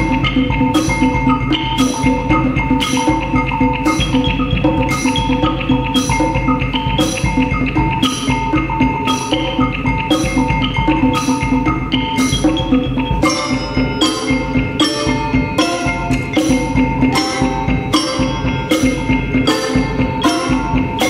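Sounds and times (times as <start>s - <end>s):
mallet percussion notes: 0.0s - 21.0s.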